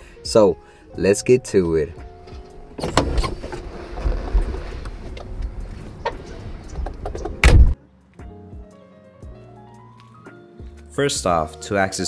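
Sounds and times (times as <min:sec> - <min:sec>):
car door opening: 0:02.1 - 0:07.8
rustling and shuffling: 0:02.2 - 0:07.5.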